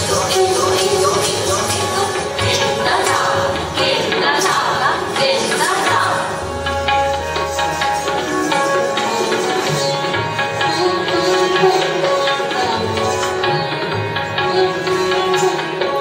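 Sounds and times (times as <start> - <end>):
tabla strokes: 0.0 - 16.0.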